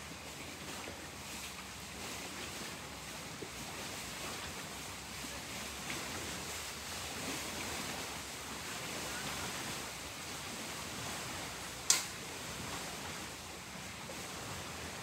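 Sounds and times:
hiss of wind or water: 0.0 - 15.0
sharp click: 11.9 - 12.2.

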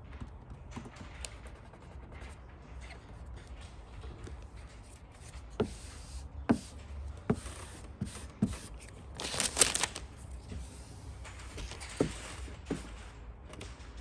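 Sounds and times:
vinyl film rustling and scraping: 8.6 - 13.0.

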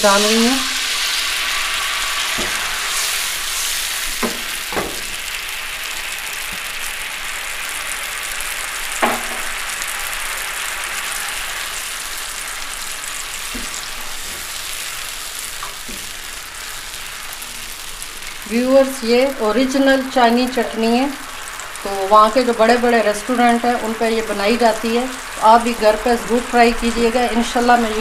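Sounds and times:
juice sizzling in hot oil: 0.0 - 28.0.

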